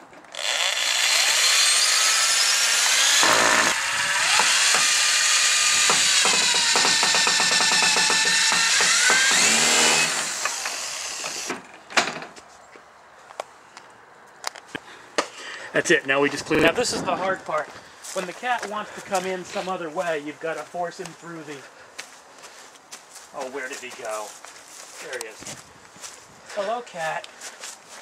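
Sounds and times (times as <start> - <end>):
electric drill whining: 0.3 - 11.6.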